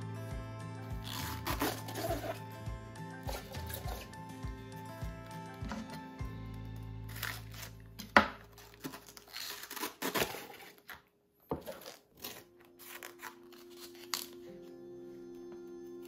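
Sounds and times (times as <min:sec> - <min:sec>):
background music: 0:00.0 - 0:09.4, 0:12.1 - 0:16.0
food rustling and tearing: 0:01.0 - 0:02.4, 0:07.1 - 0:14.5.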